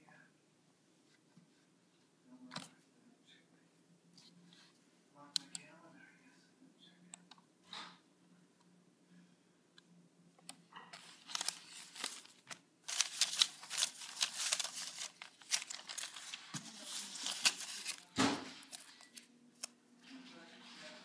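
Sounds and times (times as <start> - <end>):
crinkling and rustling: 10.7 - 21.0.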